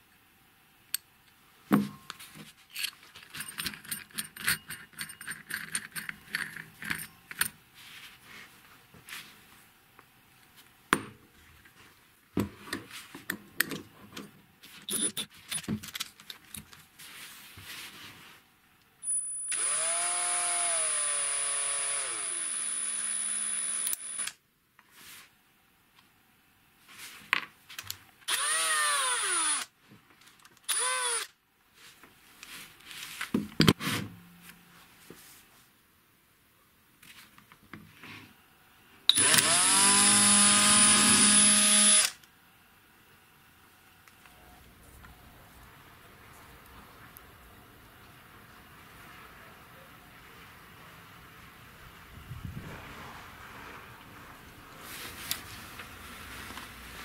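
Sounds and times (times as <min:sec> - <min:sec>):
metal parts clicking and clinking: 0:02.7 - 0:07.6
electric drill running: 0:19.4 - 0:24.4, 0:28.3 - 0:29.7, 0:30.7 - 0:31.3, 0:39.1 - 0:42.2.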